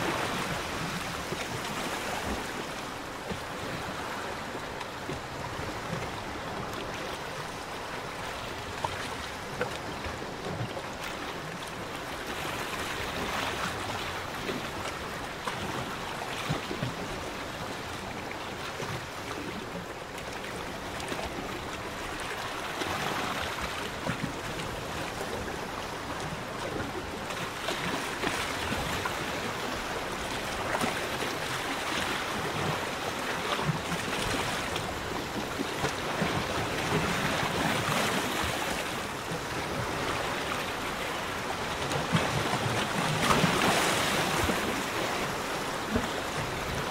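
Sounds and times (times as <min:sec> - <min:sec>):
water lapping and splashing: 0:00.0 - 0:46.9.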